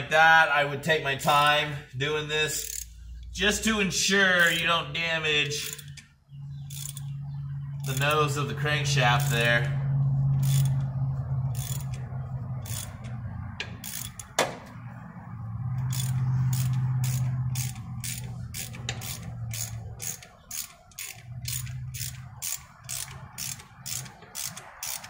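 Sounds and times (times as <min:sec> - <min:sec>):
hand ratchet clicking: 0:02.6 - 0:03.3, 0:04.3 - 0:04.8, 0:05.5 - 0:06.1, 0:06.7 - 0:07.1, 0:07.8 - 0:08.4, 0:09.1 - 0:09.6, 0:10.4 - 0:14.5, 0:15.8 - 0:25.0
low hum: 0:04.7 - 0:24.7.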